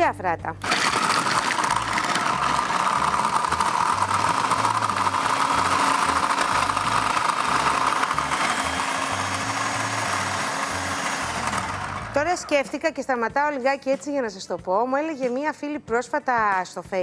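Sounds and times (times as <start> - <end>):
food processor grinding: 0.6 - 12.6.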